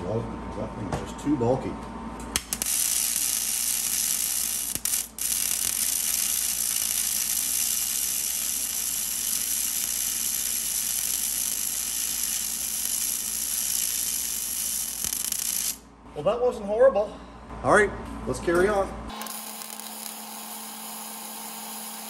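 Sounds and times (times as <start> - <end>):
welding arc hissing: 2.4 - 15.9, 19.1 - 22.0.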